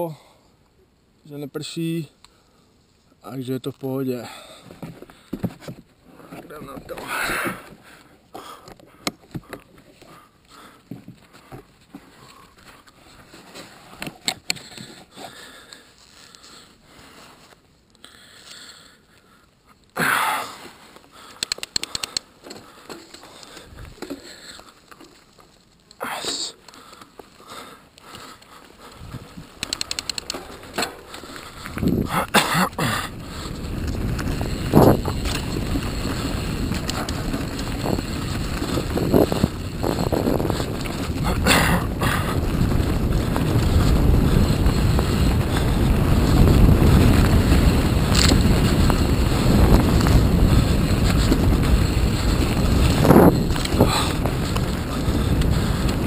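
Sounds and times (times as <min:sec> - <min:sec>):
bike rattling over ground: 0:20.6 - 0:56.0
sharp clicks: 0:21.4 - 0:22.3, 0:29.6 - 0:30.4
rush of noise: 0:29.1 - 0:56.0.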